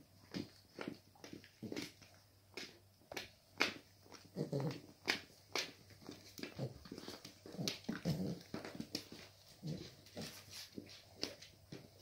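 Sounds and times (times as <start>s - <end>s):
dogs play growling and grunting: 4.2s - 5.3s, 6.2s - 10.8s.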